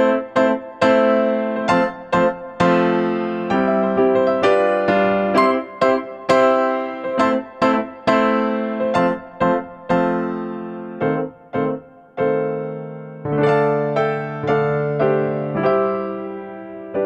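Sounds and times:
slow piano-like keyboard music: 0:00.0 - 0:17.0.

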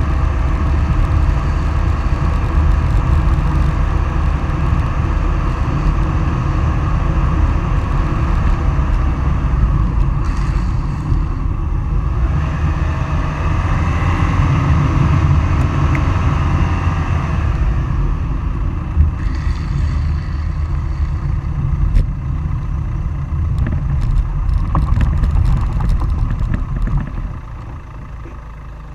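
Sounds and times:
wind buffeting microphone: 0:00.0 - 0:27.9
wheels rolling over asphalt: 0:00.0 - 0:28.9.

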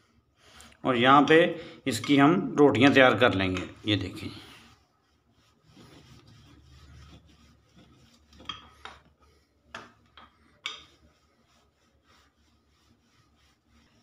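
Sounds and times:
rolling pin rolling dough: 0:00.0 - 0:14.0.

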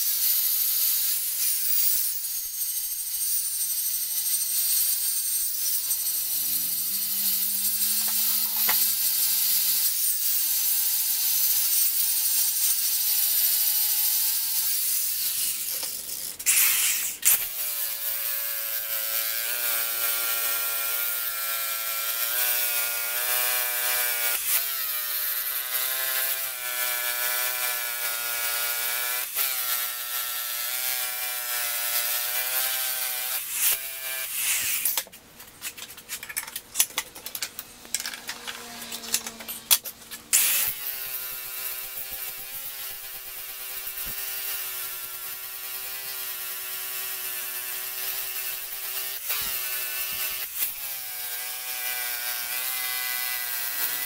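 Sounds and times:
angle grinder grinding steel: 0:00.0 - 0:36.3, 0:37.8 - 0:54.0
disk sander grinding steel: 0:01.4 - 0:10.8.

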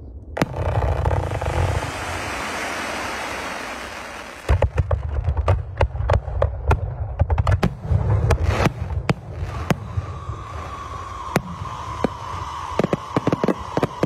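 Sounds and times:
fireworks fountains crackling: 0:00.4 - 0:05.8, 0:08.2 - 0:14.0
fireworks bangs: 0:00.4 - 0:14.0.

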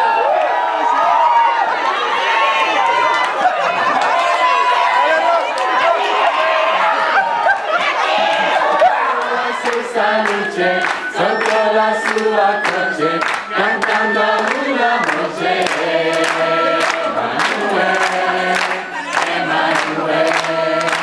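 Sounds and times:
hands clapping rhythmically: 0:07.8 - 0:21.0
group singing in chorus: 0:07.9 - 0:21.0.

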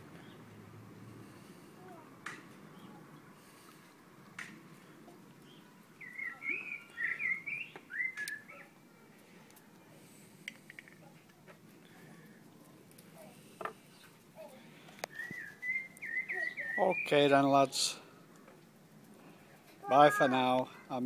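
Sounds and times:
songbird singing: 0:00.0 - 0:00.6, 0:02.6 - 0:03.4, 0:04.7 - 0:08.8, 0:13.5 - 0:18.1.

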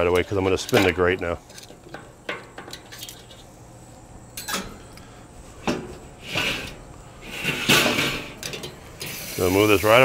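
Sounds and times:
metallic clanks of grill grate: 0:00.0 - 0:03.4, 0:04.4 - 0:04.8, 0:05.6 - 0:09.2.

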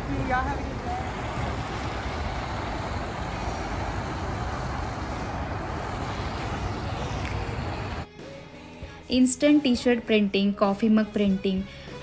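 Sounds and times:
heavy low rumble: 0:00.0 - 0:08.0
even hiss: 0:00.8 - 0:08.0.

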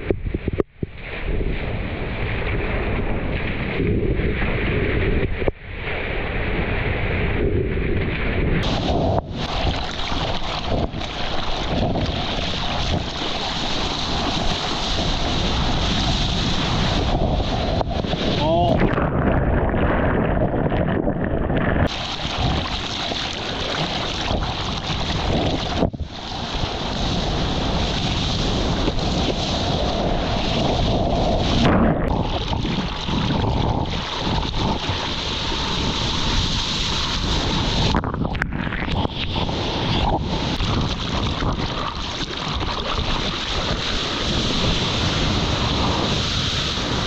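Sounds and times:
wind buffeting microphone: 0:00.0 - 0:47.0
small waves breaking: 0:08.6 - 0:38.0
water rushing and splashing: 0:08.6 - 0:47.0.

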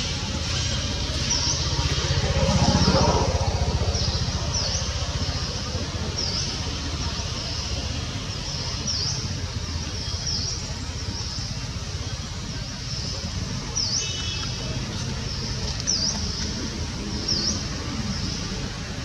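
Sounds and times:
steady low rumble: 0:00.0 - 0:19.0
bird chirping: 0:03.8 - 0:18.7.

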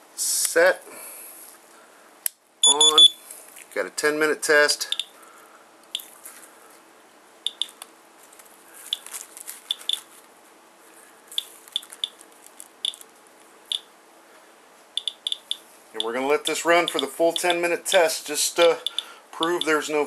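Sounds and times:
geiger counter clicking: 0:07.5 - 0:07.8, 0:15.0 - 0:16.2, 0:16.8 - 0:17.6, 0:18.6 - 0:19.8.

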